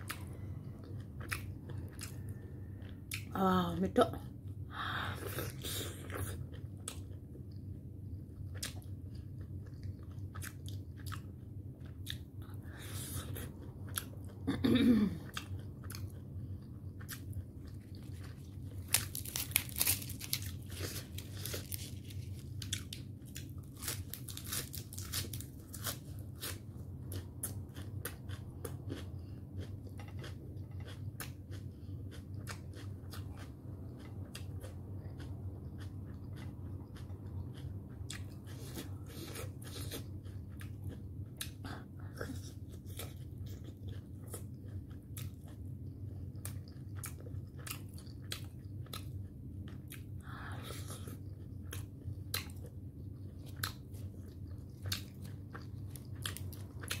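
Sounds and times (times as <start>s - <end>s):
wet chewing clicks and smacks: 6.3s - 12.5s, 27.0s - 41.8s, 42.8s - 50.2s, 51.0s - 57.0s.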